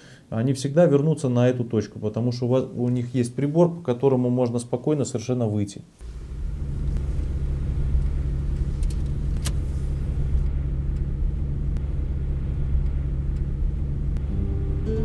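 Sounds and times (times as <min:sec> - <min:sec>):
engine and road rumble: 0:06.0 - 0:15.0
sharp click: 0:08.6 - 0:09.7.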